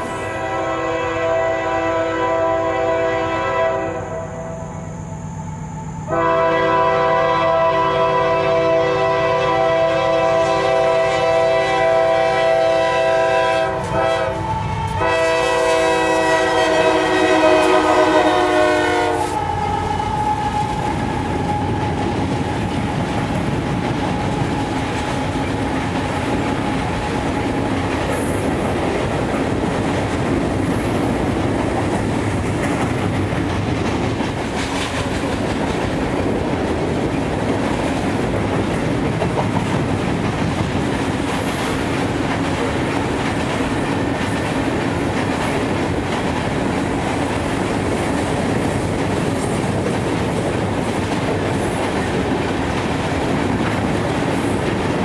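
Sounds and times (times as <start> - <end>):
locomotive air horn: 0.0 - 4.8, 6.1 - 23.2
train wheels clickety-clack: 10.3 - 55.0.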